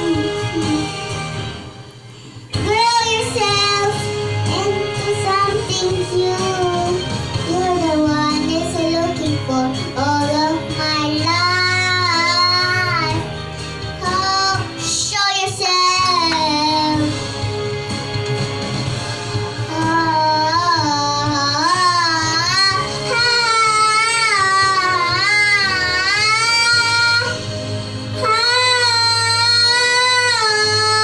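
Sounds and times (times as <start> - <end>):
karaoke backing track: 0.0 - 31.0
girl singing into a microphone: 2.6 - 13.3, 14.0 - 17.2, 19.7 - 27.4, 28.2 - 31.0.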